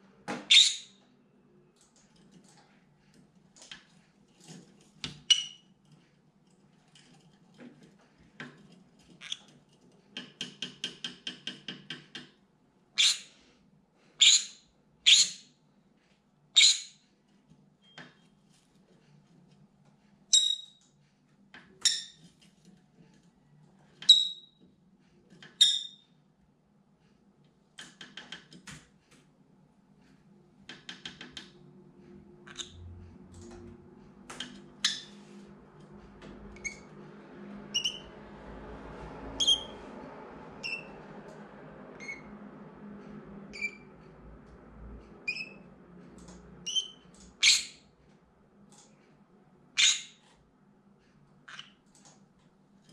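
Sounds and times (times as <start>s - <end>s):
parrot chattering calls: 49.8s - 50.2s.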